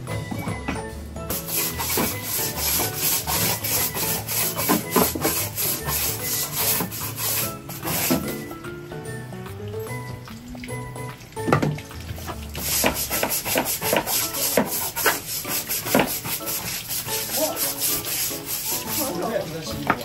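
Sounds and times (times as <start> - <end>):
claws scratching wood: 1.3 - 8.4, 12.6 - 19.4.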